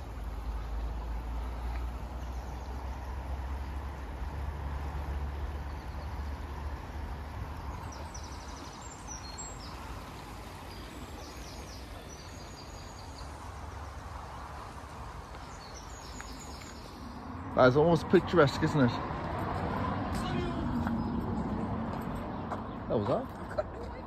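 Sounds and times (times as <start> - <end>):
songbirds trilling: 0.0 - 4.0, 4.9 - 19.0
outdoor background noise: 0.0 - 24.0.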